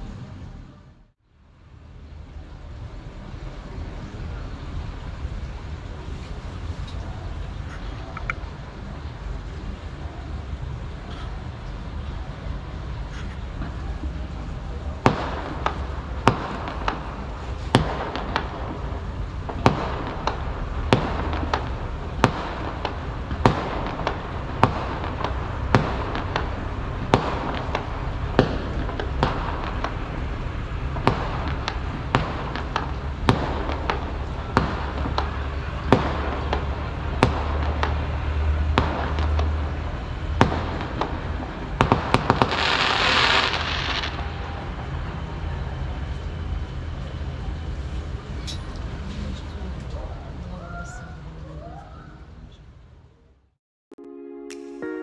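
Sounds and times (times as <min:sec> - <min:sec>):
steady low rumble: 0:00.0 - 0:50.5
fireworks crackling hiss: 0:02.4 - 0:45.5
fireworks bangs: 0:13.0 - 0:45.6.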